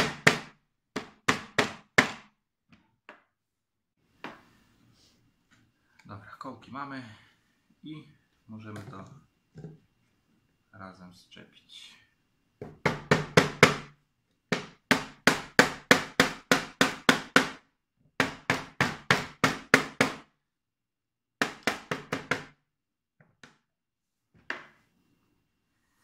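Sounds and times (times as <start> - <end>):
rubber mallet knocking a panel: 12.6 - 13.9.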